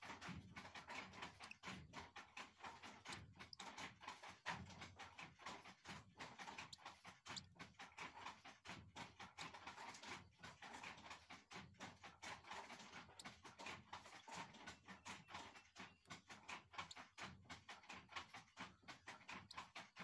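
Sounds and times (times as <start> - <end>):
beak pecking: 0.8 - 1.7, 5.5 - 7.6, 12.4 - 18.4.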